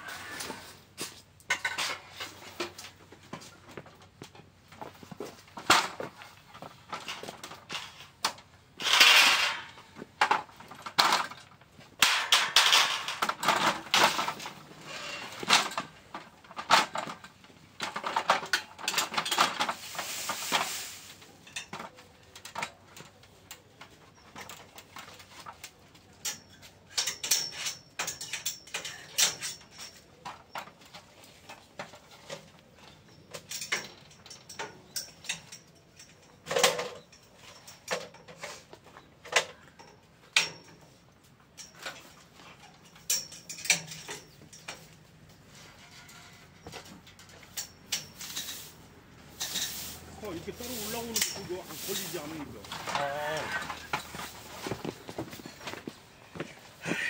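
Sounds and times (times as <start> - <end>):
metallic clanks and clicks: 6.9 - 14.6, 21.4 - 38.5, 39.2 - 40.8, 41.5 - 48.7, 49.4 - 56.0.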